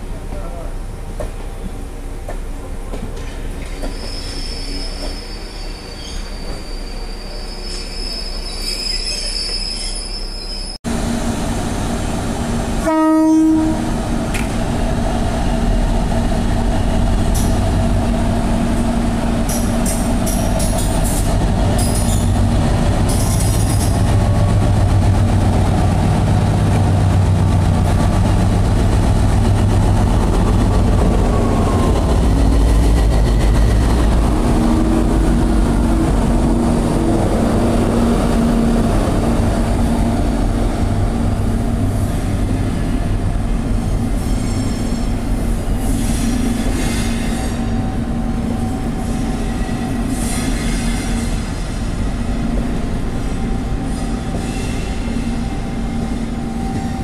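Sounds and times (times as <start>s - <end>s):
train moving: 0.0s - 57.0s
wheel flange squeals: 3.7s - 10.8s
diesel locomotive rumble: 10.9s - 57.0s
train horn blast: 12.8s - 14.0s.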